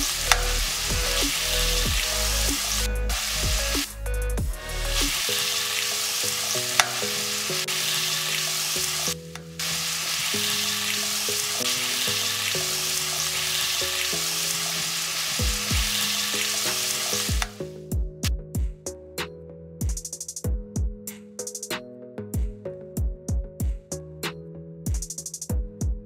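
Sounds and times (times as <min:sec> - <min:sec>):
soup sizzling and bubbling: 0:00.0 - 0:03.9, 0:04.6 - 0:17.6.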